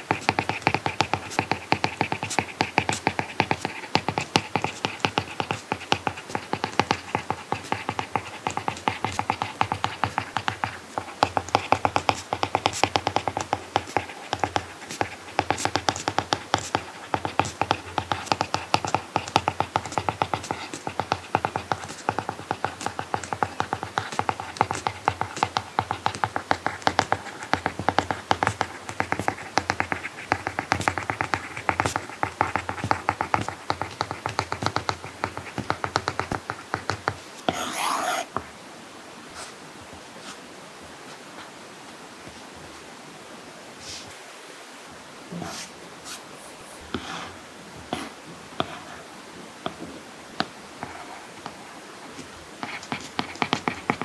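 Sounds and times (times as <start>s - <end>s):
stylus tapping on screen: 0.0s - 38.5s, 52.6s - 54.0s.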